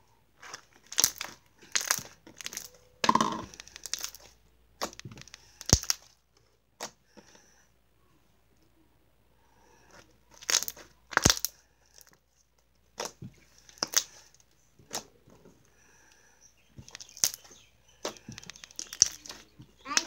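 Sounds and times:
slime popping and crackling: 0.5 - 6.1, 10.3 - 11.6, 13.0 - 14.2, 16.8 - 20.0.

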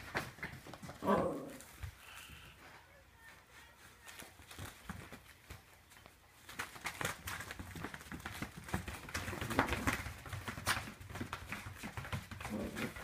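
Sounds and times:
dog shaking toy on carpet: 6.4 - 13.0.

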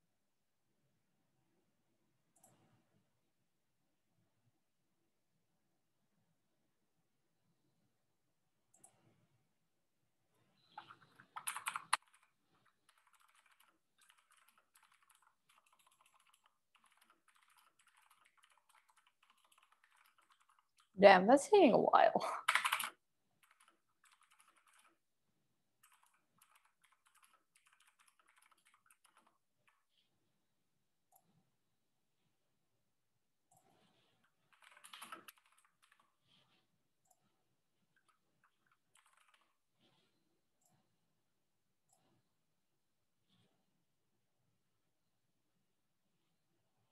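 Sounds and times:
typing on computer keyboard: 10.7 - 21.0, 22.4 - 25.0, 25.8 - 29.9, 34.2 - 36.3, 37.9 - 39.6.

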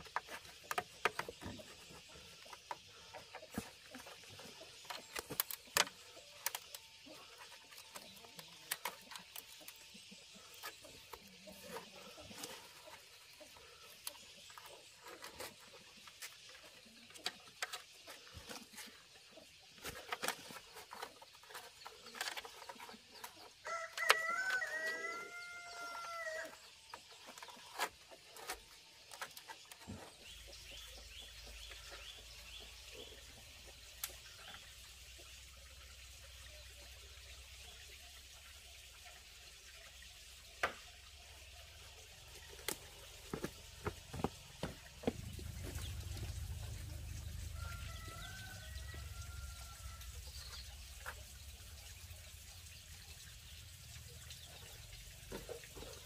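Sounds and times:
rooster crowing: 23.6 - 26.6, 47.4 - 50.2.

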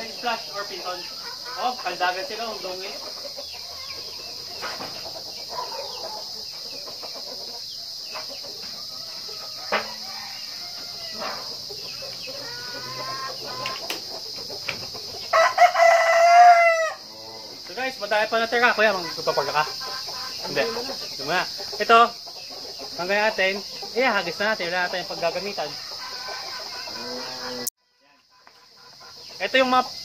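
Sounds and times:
rooster crowing: 0.0 - 2.8, 5.3 - 6.5, 7.6 - 14.3, 15.2 - 17.6, 24.2 - 27.7
chickens clucking: 0.0 - 30.0.

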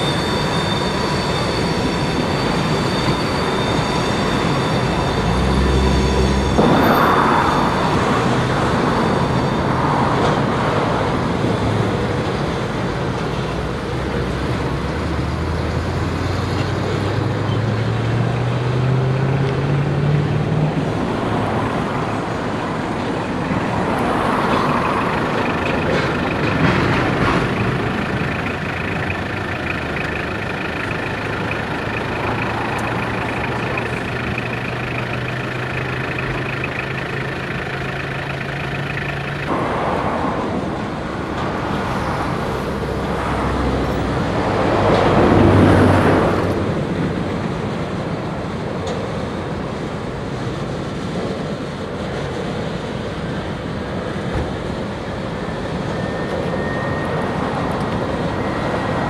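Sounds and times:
high squeal: 0.0 - 40.3, 55.2 - 59.0
engine hum: 0.0 - 59.0
freight train rumbling past: 0.0 - 59.0.

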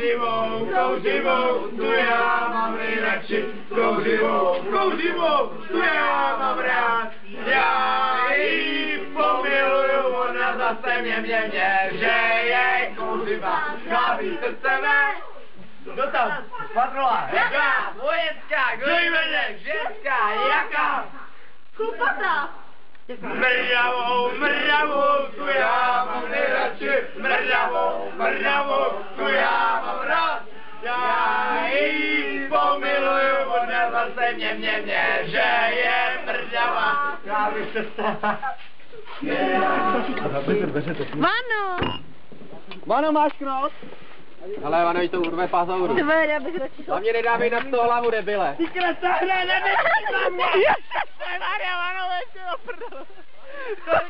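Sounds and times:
two men chanting: 0.0 - 15.3
young men singing together: 0.0 - 15.3, 23.1 - 38.6, 39.2 - 40.9.

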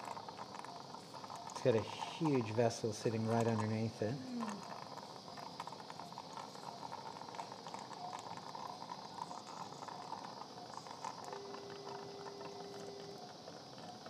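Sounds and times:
surgical suction gurgling and hissing: 0.0 - 11.6.

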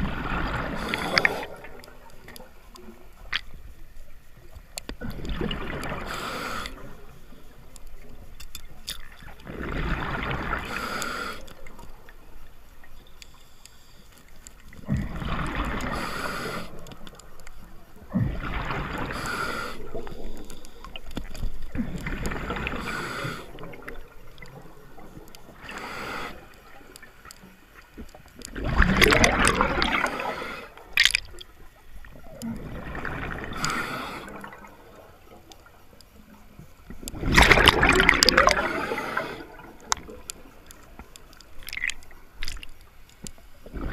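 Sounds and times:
bubbles gurgling: 0.0 - 2.4, 5.0 - 7.0, 9.2 - 10.9, 14.8 - 16.0, 18.0 - 20.5, 21.5 - 25.7, 28.4 - 31.5, 32.1 - 35.4, 37.0 - 42.6, 43.6 - 43.9
diver breathing through regulator: 0.6 - 1.8, 5.9 - 6.9, 10.6 - 11.6, 15.8 - 16.9, 18.9 - 21.0, 22.4 - 23.8, 25.6 - 26.6, 29.0 - 30.9, 33.4 - 34.7, 37.8 - 40.0.

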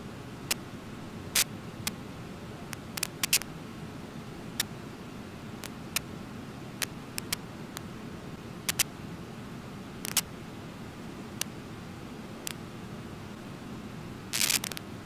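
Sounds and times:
sharp clicks: 2.7 - 3.4, 7.2 - 7.4, 8.7 - 8.9, 10.1 - 10.3, 14.4 - 14.8.

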